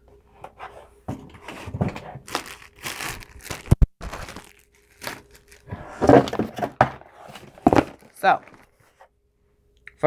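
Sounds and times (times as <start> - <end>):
packaging crinkling and rustling: 1.5 - 8.8.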